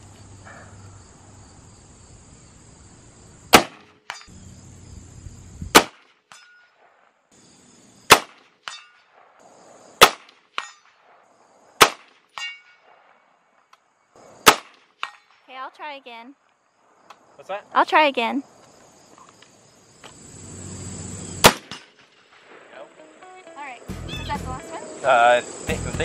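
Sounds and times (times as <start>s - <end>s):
high insect buzz: 0.0s - 5.8s, 7.3s - 8.2s, 15.5s - 21.7s, 22.7s - 26.0s
rifle shots: 3.5s - 4.0s, 5.7s - 6.0s, 8.1s - 9.3s, 10.0s - 11.2s, 11.8s - 12.2s, 14.4s - 15.3s, 21.4s - 22.8s
bullet clanging on steel plate: 4.1s - 4.3s, 6.3s - 6.8s, 8.6s - 9.1s, 10.6s - 10.9s, 12.4s - 12.8s.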